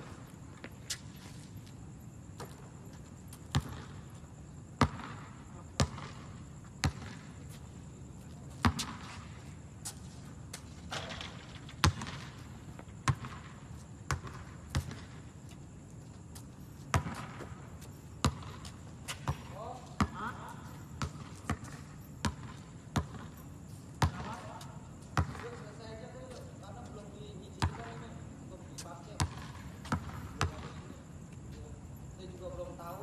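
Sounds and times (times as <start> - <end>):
basketball bouncing on hard court: 3.5 - 4.0, 4.8 - 7.3, 8.6 - 9.1, 11.0 - 12.3, 13.0 - 13.5, 14.1 - 15.2, 16.9 - 17.5, 18.2 - 23.3, 24.0 - 24.6, 25.2 - 25.6, 27.6 - 28.0, 29.2 - 30.8.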